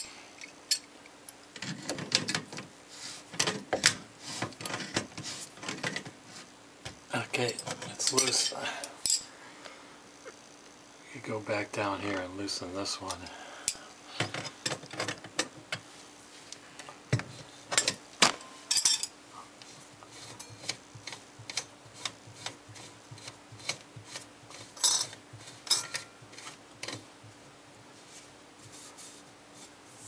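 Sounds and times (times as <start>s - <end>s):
wrench clinking on metal pipe: 25.7s - 26.1s.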